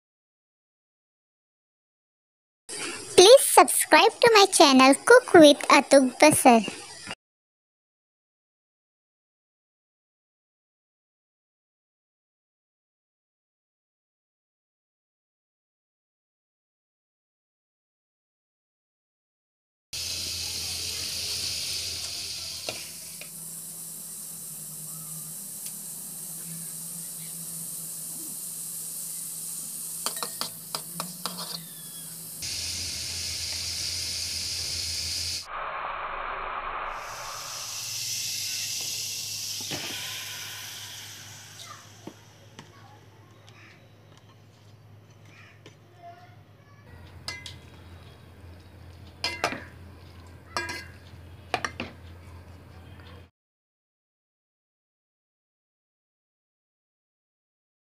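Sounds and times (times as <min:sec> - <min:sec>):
butter sizzling in pot: 0:20.0 - 0:35.5, 0:36.5 - 0:42.4
low hum: 0:32.2 - 0:38.0.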